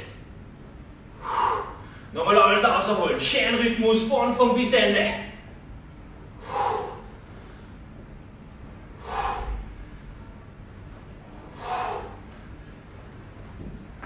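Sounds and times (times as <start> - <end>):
man breathing out hard: 1.2 - 2.1, 6.4 - 7.8, 8.9 - 10.2, 11.5 - 12.4.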